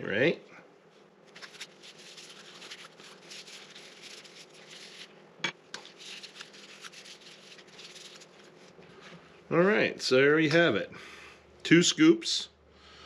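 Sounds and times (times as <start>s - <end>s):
gloved hands rustling: 1.2s - 9.2s.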